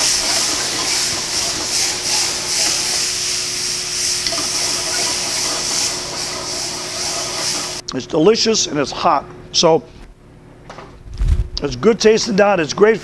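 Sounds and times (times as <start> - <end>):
tomatoes sizzling in a skillet: 0.0 - 7.8.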